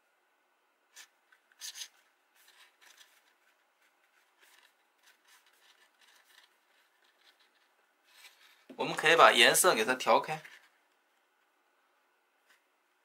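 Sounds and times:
paper rustling and rubbing: 0.9 - 9.1, 10.2 - 10.8
paper crackle: 1.0 - 8.7.

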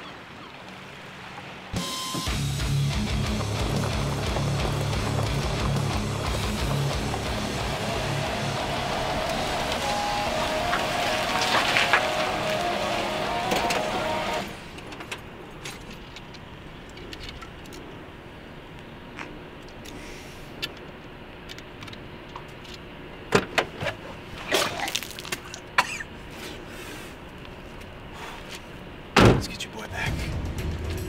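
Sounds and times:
held tone: 7.0 - 14.6.

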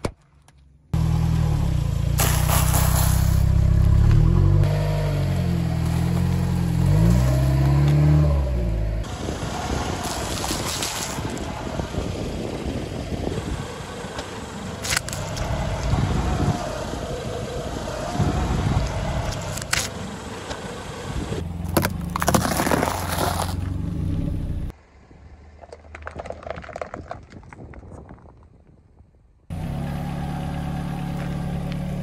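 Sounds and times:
car engine running: 1.0 - 24.7, 29.5 - 32.0
plastic cups crackling under tyre: 10.0 - 11.7, 14.8 - 15.9, 21.6 - 23.7, 25.6 - 28.4.

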